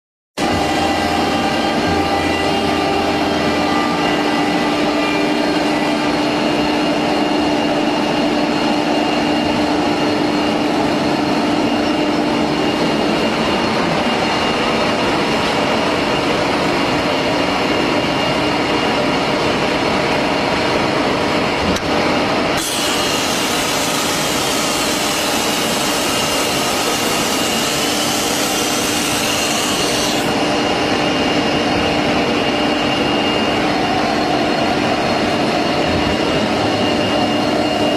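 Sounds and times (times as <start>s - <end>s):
cnc router machine hum: 0.4s - 37.9s
loud hiss: 22.6s - 30.3s.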